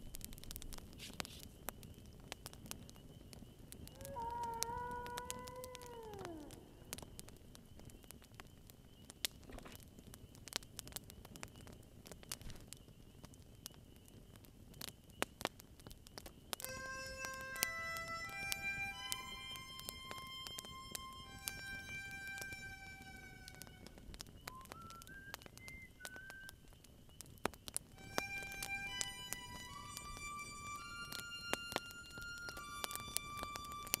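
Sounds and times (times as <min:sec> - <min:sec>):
campfire crackling: 0:00.0 - 0:34.0
fire popping: 0:00.0 - 0:34.0
low hiss of fire: 0:00.0 - 0:34.0
harmonica holding notes: 0:16.6 - 0:24.1, 0:28.0 - 0:34.0.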